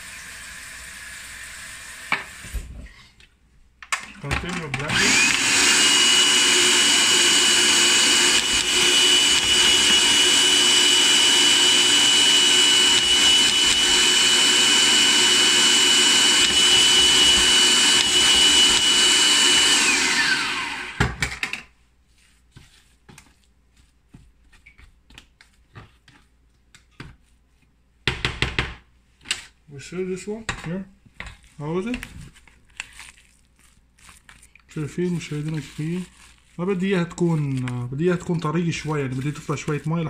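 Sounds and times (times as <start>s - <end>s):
food processor motor whining: 4.5s - 21.6s.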